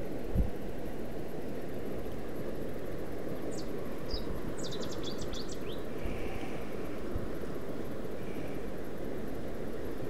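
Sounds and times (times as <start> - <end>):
small bird chirping: 3.4 - 6.6.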